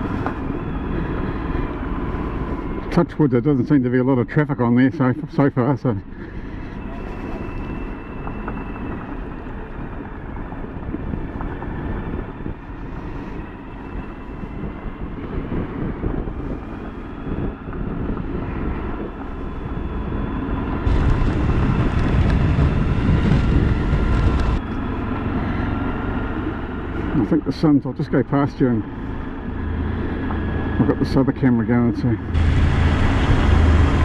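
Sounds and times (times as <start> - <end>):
wind noise on microphone: 6.0 - 25.9
motorcycle engine running: 19.9 - 27.3, 32.2 - 34.0.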